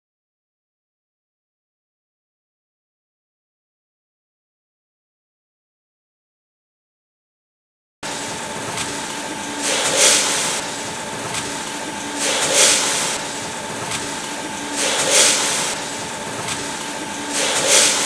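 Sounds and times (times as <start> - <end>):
machine hum: 8.0 - 18.0
pneumatic hiss: 8.1 - 18.0.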